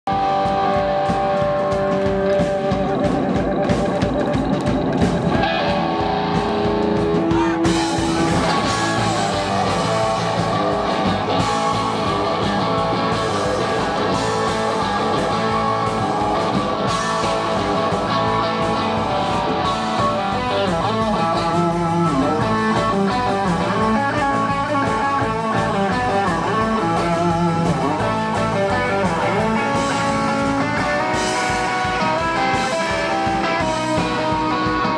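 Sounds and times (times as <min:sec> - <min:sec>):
bass: 0:00.0 - 0:34.9
drums: 0:00.0 - 0:34.9
electric guitar: 0:00.1 - 0:34.9
keyboard: 0:00.1 - 0:34.9.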